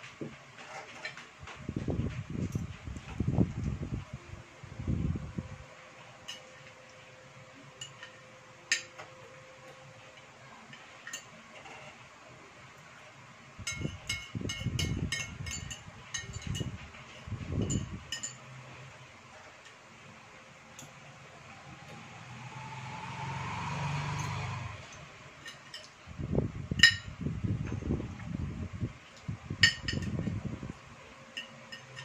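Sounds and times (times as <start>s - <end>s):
cutlery clinking on a plate: 25.4s - 26.0s, 31.3s - 32.0s.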